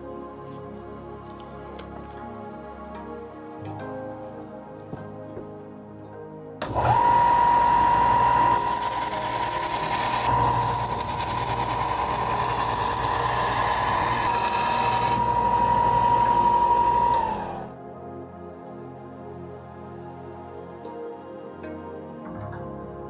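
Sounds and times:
power tool motor whining: 6.6 - 17.8.

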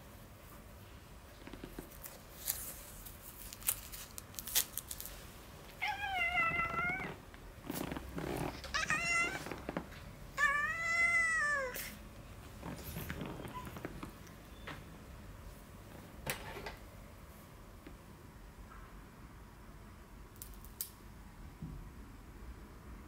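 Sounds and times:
cat meowing: 5.8 - 7.2, 8.6 - 9.6, 10.4 - 12.0.

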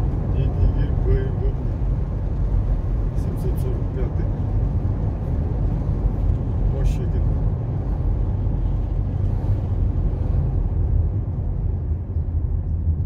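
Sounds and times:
car engine rumble: 0.0 - 13.0.

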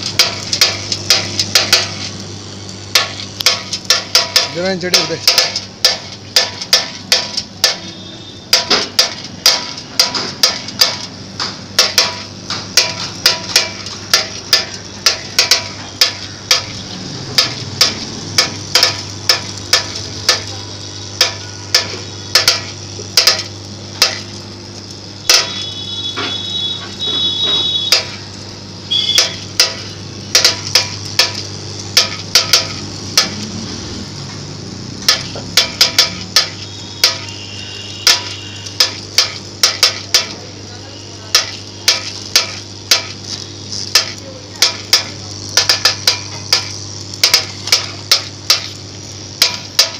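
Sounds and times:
machine low hum: 0.0 - 49.9
sharp metallic clicks: 2.9 - 20.5, 28.9 - 33.6, 35.0 - 37.4.

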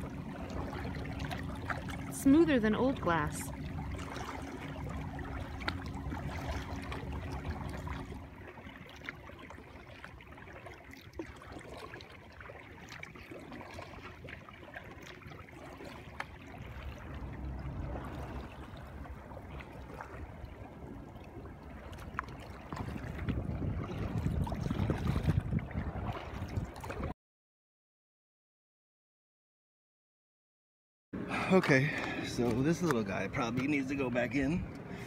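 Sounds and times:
water trickling and dripping: 0.0 - 27.0
wind on microphone: 21.9 - 27.1.

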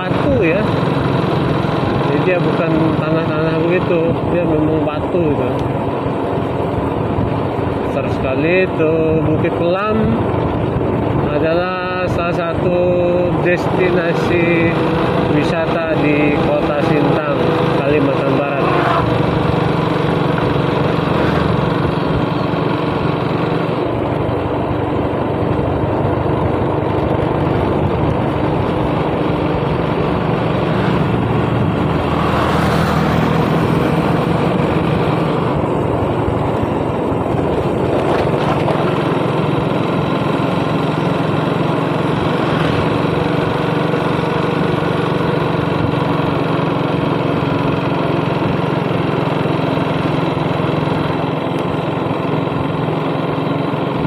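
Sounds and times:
motorcycle engine running: 0.0 - 54.0
road noise: 0.0 - 54.0
wind noise: 6.6 - 13.2, 23.7 - 39.2.

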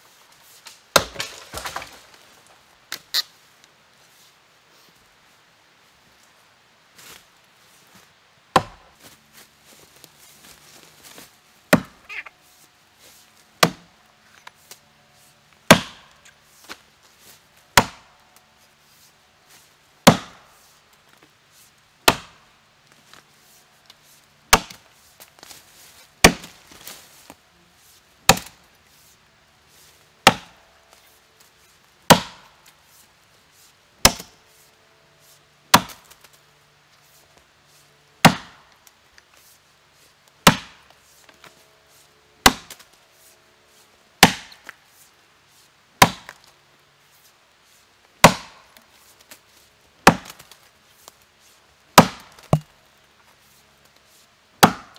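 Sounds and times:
axe chopping into tree trunk: 0.9 - 2.1, 8.5 - 8.9, 11.7 - 12.0, 13.6 - 13.9, 15.7 - 16.1, 17.8 - 18.1, 20.0 - 20.4, 22.0 - 22.4, 24.5 - 24.8, 26.2 - 26.6, 28.3 - 28.6, 30.2 - 30.6, 32.1 - 32.5, 34.0 - 34.3, 35.7 - 36.1, 38.2 - 38.6, 40.4 - 40.8, 42.4 - 42.8, 44.2 - 44.7, 46.0 - 46.4, 48.2 - 48.6, 50.0 - 50.5, 52.0 - 52.7, 54.6 - 54.9.

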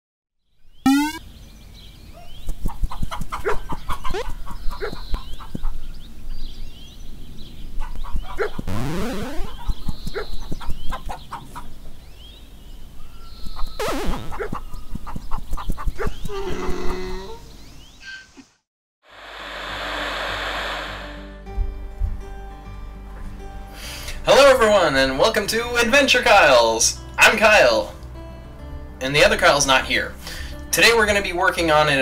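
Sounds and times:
rising tone: 0.9 - 1.2, 8.7 - 9.6, 19.1 - 21.4
chickens clucking and squawking: 10.9 - 11.8
music: 20.0 - 32.0.

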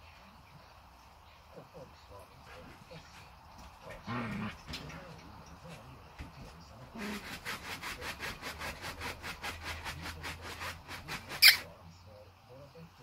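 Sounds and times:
claws scratching mesh fabric: 6.8 - 11.7.

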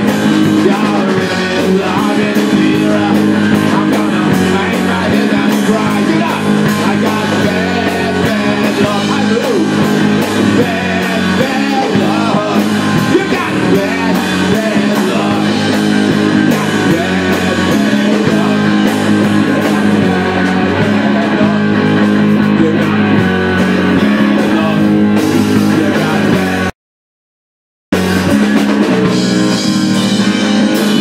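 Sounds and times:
drum kit beat: 0.0 - 26.7, 27.9 - 31.0
electric guitars: 0.0 - 26.7, 28.0 - 31.0
person singing: 0.0 - 26.8.

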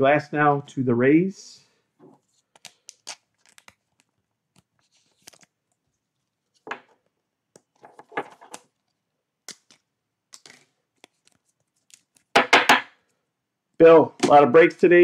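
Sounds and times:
cards and wrappers crinkling: 2.3 - 5.6, 9.5 - 12.4.

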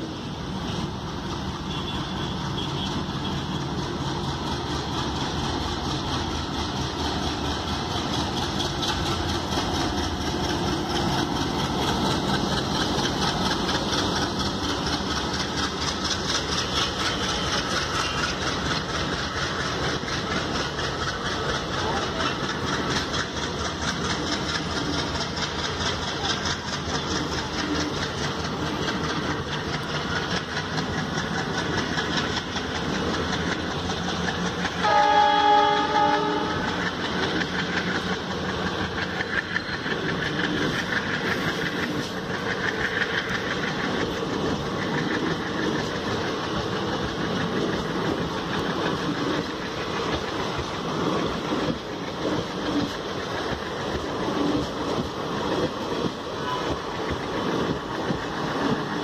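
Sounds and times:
train wheels clicking over rail joints: 0.0 - 59.0
train horn: 34.8 - 36.9.

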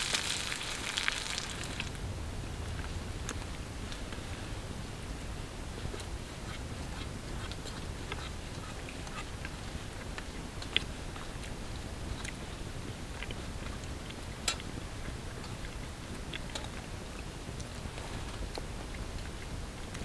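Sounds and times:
campfire crackling and popping: 0.0 - 4.3
low steady hiss: 0.0 - 20.0.

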